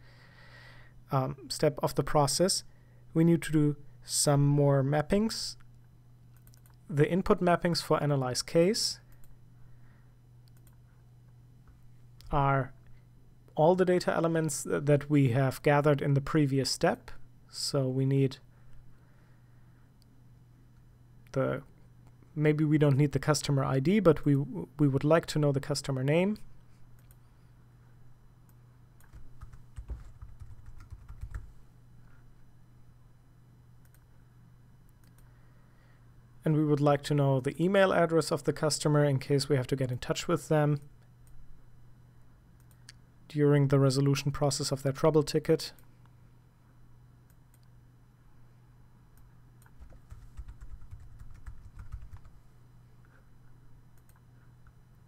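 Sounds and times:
low steady hum: 0.0s - 55.0s
faint clicks: 5.6s - 6.8s, 10.4s - 10.8s, 27.0s - 27.2s
keyboard typing clicks: 6.4s - 6.8s, 49.2s - 52.3s
keyboard typing: 29.0s - 31.5s, 49.6s - 52.4s.

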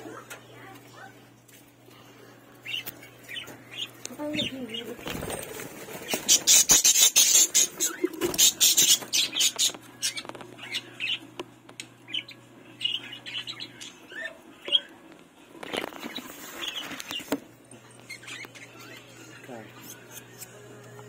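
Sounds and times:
budgerigars chirping: 6.0s - 11.2s.

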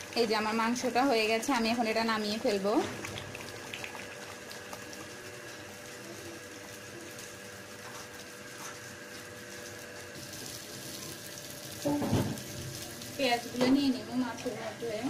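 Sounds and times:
curry bubbling in a pot: 0.0s - 14.4s.

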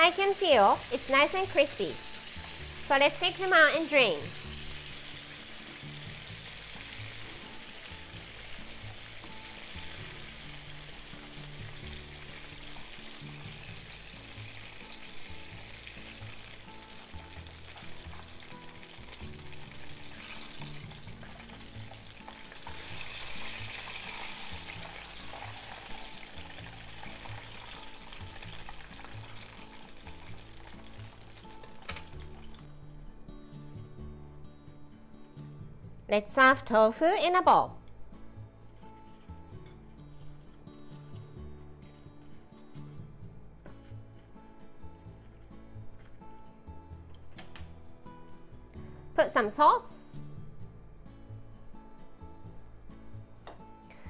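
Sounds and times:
oil sizzling and bubbling: 0.0s - 32.7s
background music low notes: 0.0s - 54.0s.

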